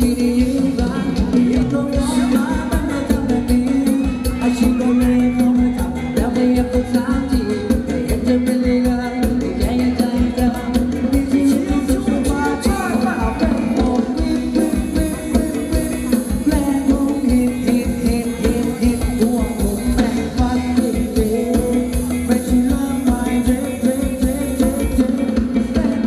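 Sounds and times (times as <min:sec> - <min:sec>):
live band dance music: 0:00.0 - 0:26.0
person singing: 0:00.0 - 0:26.0
steady drum beat: 0:00.0 - 0:26.0.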